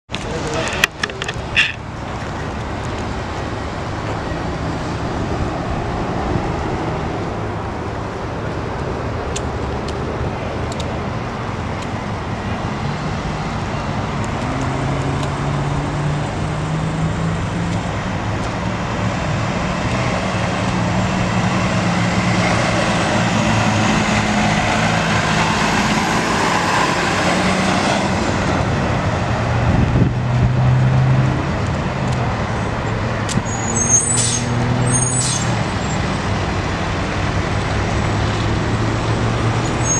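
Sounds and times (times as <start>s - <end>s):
road traffic noise: 0.0s - 39.9s
truck diesel engine passing: 10.5s - 39.9s.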